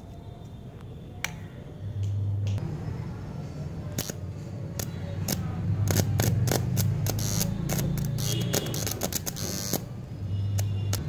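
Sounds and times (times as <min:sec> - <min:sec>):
welding arc crackling: 0:04.8 - 0:09.9.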